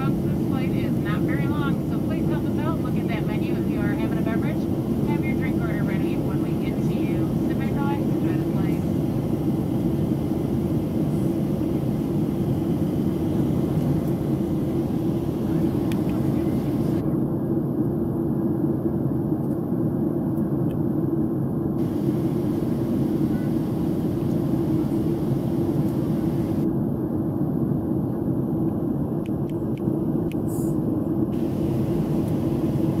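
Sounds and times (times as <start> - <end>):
airplane cabin engine rumble: 0.0 - 33.0.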